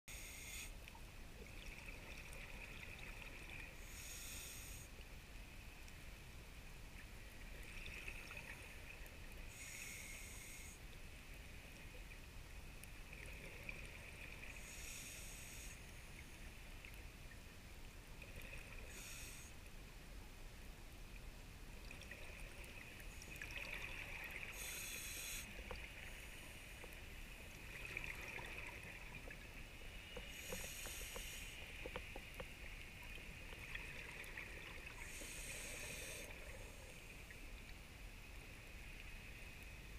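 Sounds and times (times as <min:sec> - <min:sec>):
regulator hissing inhale: 0:00.1 - 0:00.8, 0:03.8 - 0:05.0, 0:09.5 - 0:10.9, 0:14.5 - 0:16.0, 0:18.8 - 0:19.6, 0:24.4 - 0:26.8, 0:30.0 - 0:32.2, 0:35.0 - 0:37.1.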